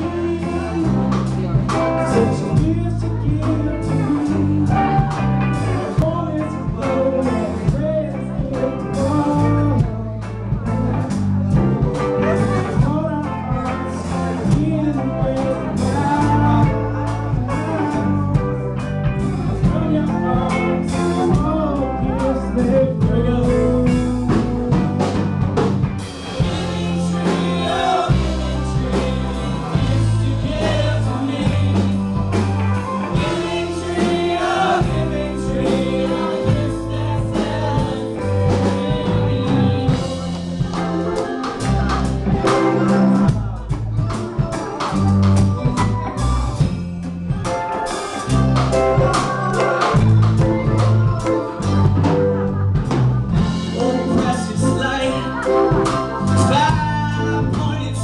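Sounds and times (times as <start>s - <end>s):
person singing: 0.0s - 25.4s, 26.2s - 46.7s, 47.4s - 58.0s
bass line: 0.0s - 58.0s
guitar: 0.0s - 58.0s
drum beat: 23.2s - 54.5s.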